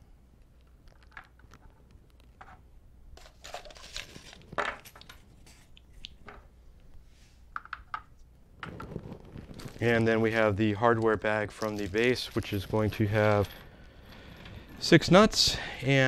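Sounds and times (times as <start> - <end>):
plastic bag rustling: 3.2 - 5.7, 8.6 - 15.4.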